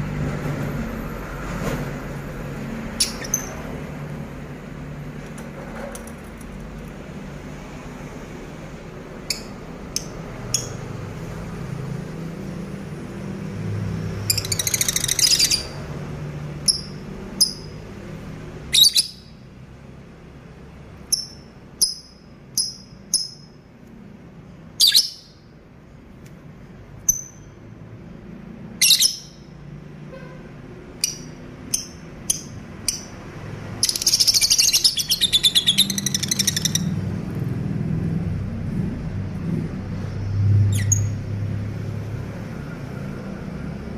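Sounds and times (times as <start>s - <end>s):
lovebirds chirping: 2.8s - 3.8s, 9.2s - 10.9s, 14.1s - 15.9s, 18.7s - 19.4s, 24.8s - 25.5s, 30.9s - 37.1s, 40.2s - 41.3s
birds chattering rapidly: 2.8s - 4.0s, 14.2s - 15.9s, 30.9s - 37.1s.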